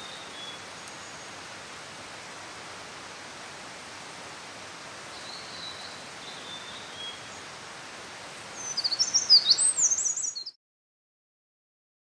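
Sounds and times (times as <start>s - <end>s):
stream rushing: 0.0s - 10.2s
wren singing: 8.5s - 10.6s.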